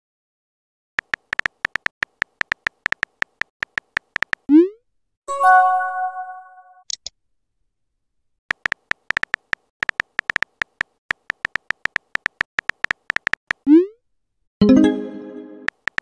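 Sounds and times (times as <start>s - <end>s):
keyboard typing ticks: 1.0s - 4.5s, 8.5s - 13.8s, 15.6s - 16.0s.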